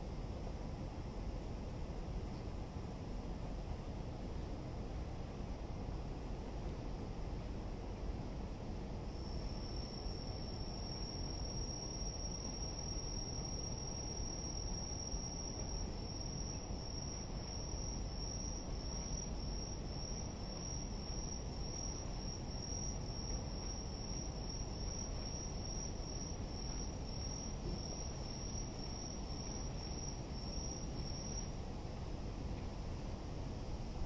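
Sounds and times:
cricket trilling: 9.1s - 31.5s.

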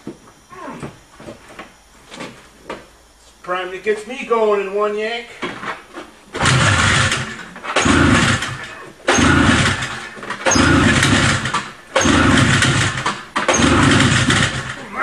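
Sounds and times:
pull starter yanks: 6.3s - 15.0s
two-stroke engine firing briefly: 6.4s - 14.8s.

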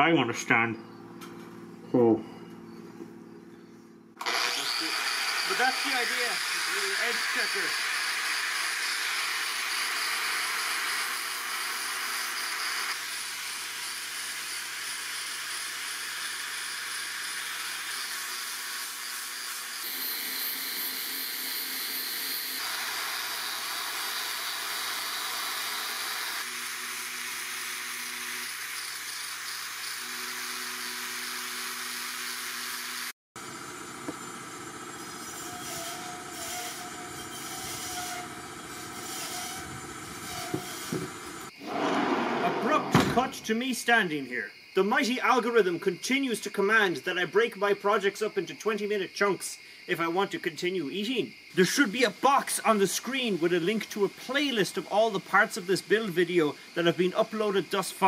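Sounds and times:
angle grinder on steel blade: 4.2s - 33.1s, 34.9s - 41.5s.

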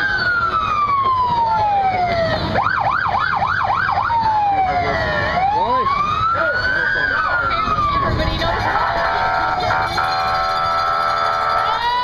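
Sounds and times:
electronic siren wailing and yelping: 0.0s - 12.0s.

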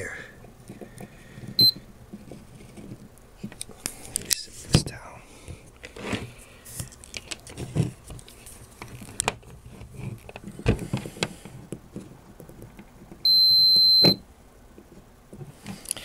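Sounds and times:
multimeter continuity beep: 1.6s - 1.8s, 13.2s - 14.2s.

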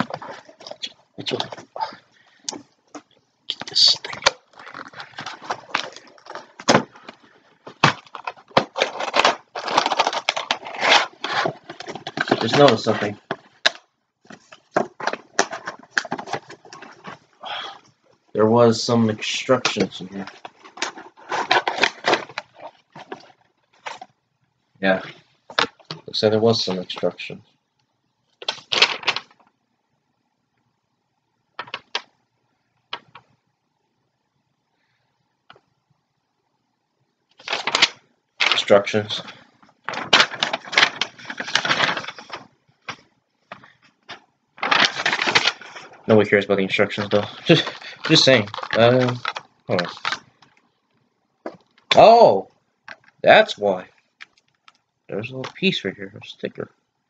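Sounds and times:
packaging crackling rustle: 3.7s - 17.4s, 19.5s - 24.1s, 28.4s - 29.5s, 37.3s - 50.6s.

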